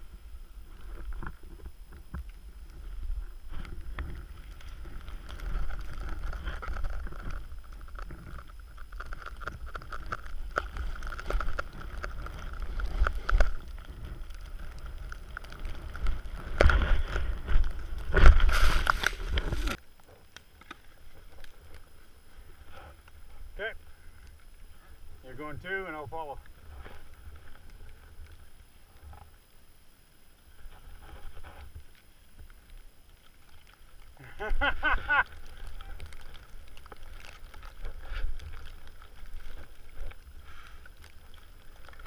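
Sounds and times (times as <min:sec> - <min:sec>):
skis swishing through powder snow: 0:11.6 - 0:19.8.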